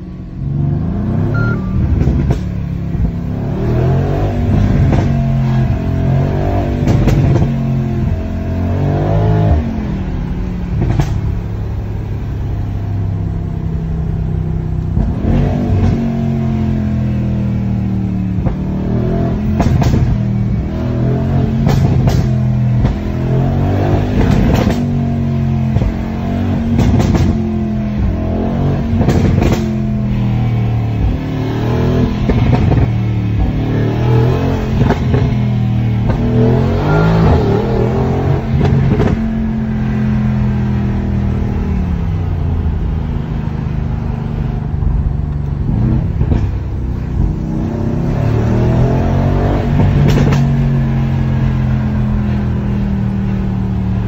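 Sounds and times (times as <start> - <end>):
car engine revving: 0.0 - 54.0
exhaust pops and crackles: 1.9 - 3.2, 6.8 - 7.6, 10.7 - 11.5, 14.8 - 16.1, 18.4 - 18.7, 19.5 - 20.3, 21.6 - 23.2, 24.1 - 25.0, 25.6 - 28.2, 28.9 - 30.2, 32.1 - 33.6, 34.7 - 36.4, 38.5 - 39.4, 44.8 - 47.5, 49.6 - 50.8.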